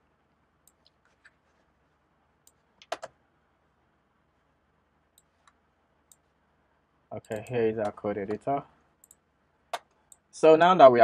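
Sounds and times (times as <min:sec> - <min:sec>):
computer clicking: 0:02.4 - 0:03.2, 0:05.2 - 0:06.3, 0:07.2 - 0:10.3.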